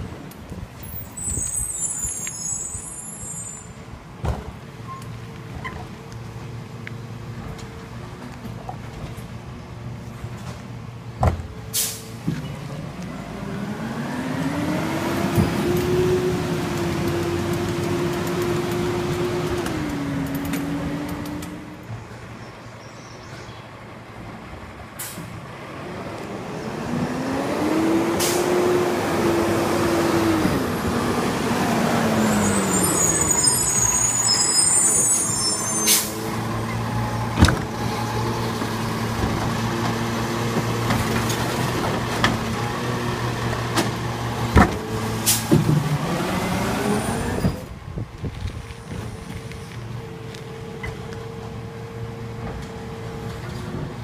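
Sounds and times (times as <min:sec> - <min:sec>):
air brakes hissing: 0:01.0 - 0:03.8, 0:11.7 - 0:12.2, 0:32.2 - 0:36.2, 0:45.2 - 0:45.5
garbage truck diesel engine revving: 0:12.9 - 0:21.7, 0:25.8 - 0:34.9, 0:35.8 - 0:47.6.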